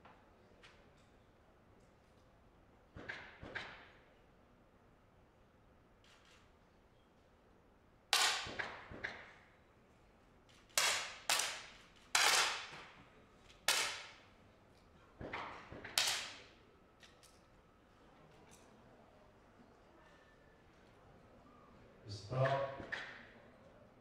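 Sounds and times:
air pistol shots: 0:08.2 - 0:08.9, 0:13.7 - 0:14.2, 0:16.0 - 0:16.4.

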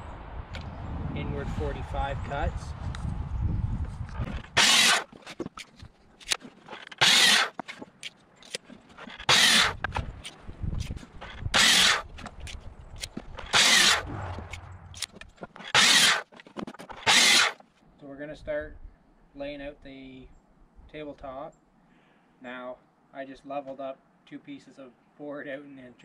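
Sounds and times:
miter saw cutting wood: 0:04.2 - 0:05.4, 0:06.2 - 0:07.8, 0:08.5 - 0:17.6.

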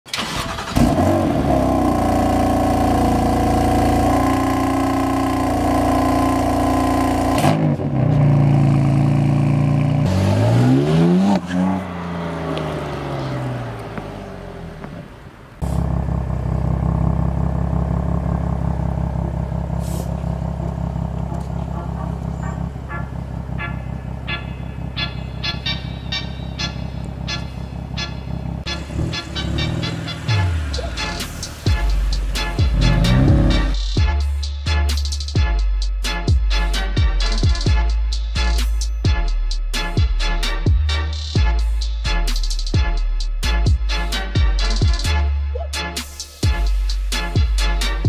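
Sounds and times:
car engine revving: 0:00.1 - 0:34.4
engine idling low rumble: 0:12.4 - 0:39.3.

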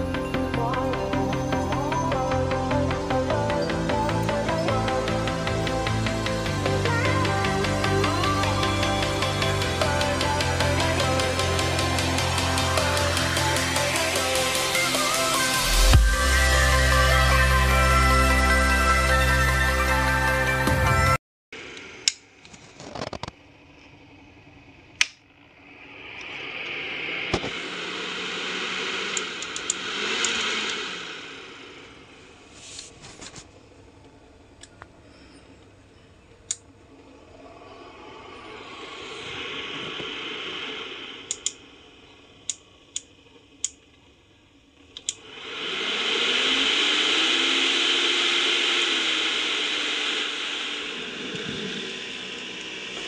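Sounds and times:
cooling fan whooshing hum: 0:00.0 - 0:17.3, 0:21.7 - 0:53.0
sharp clicks: 0:41.3 - 0:41.6.

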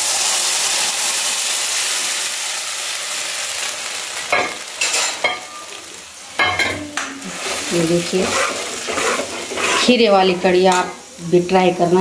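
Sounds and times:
batter sizzling in hot pan: 0:00.0 - 0:12.0
ladle scraping: 0:07.4 - 0:10.0.

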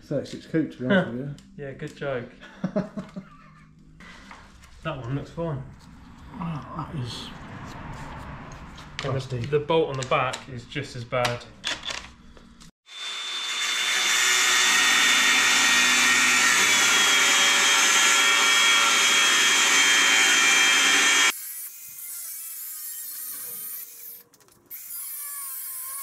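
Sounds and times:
angle grinder cutting metal: 0:12.9 - 0:26.0.

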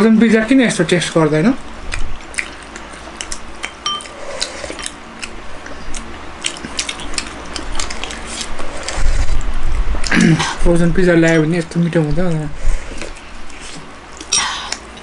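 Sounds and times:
eating clicks: 0:01.9 - 0:10.6
spoon clinking against bowl: 0:03.7 - 0:04.1.

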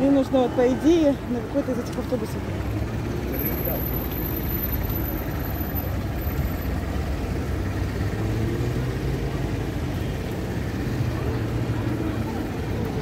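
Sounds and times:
traffic engine hum: 0:00.0 - 0:13.0.

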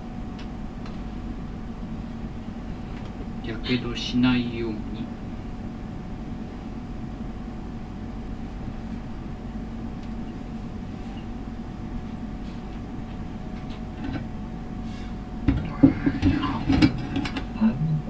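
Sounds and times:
faint constant hum: 0:00.0 - 0:18.0
gas range rumbling: 0:12.7 - 0:18.0.

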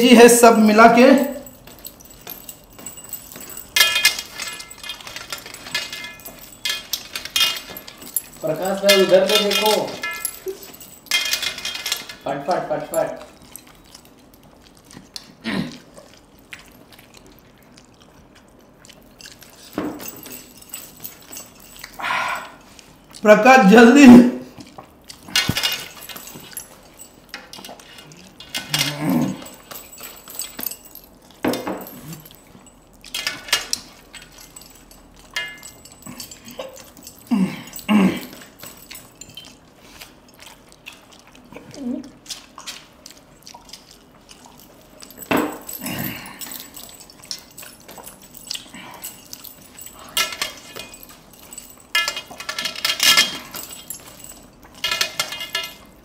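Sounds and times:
rings clinking on steel: 0:00.0 - 0:15.3, 0:19.1 - 0:22.8, 0:25.1 - 0:56.0
chewing and mouth noises: 0:01.3 - 0:23.3, 0:24.4 - 0:56.0.

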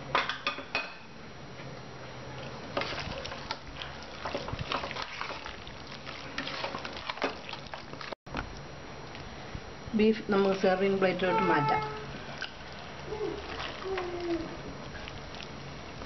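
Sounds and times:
gravy squelching: 0:02.8 - 0:08.2, 0:11.9 - 0:16.0.

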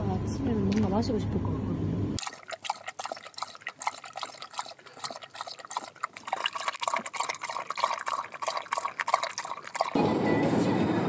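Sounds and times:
dog lapping water from a bowl: 0:02.2 - 0:10.1.

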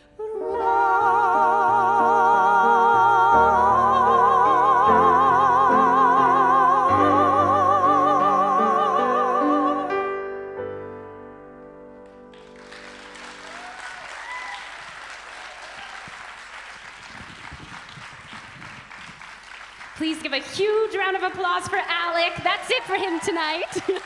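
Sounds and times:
man and woman singing opera: 0:00.0 - 0:10.0
piano accompaniment: 0:00.0 - 0:14.1
audience applauding: 0:12.0 - 0:21.1, 0:22.1 - 0:24.0.

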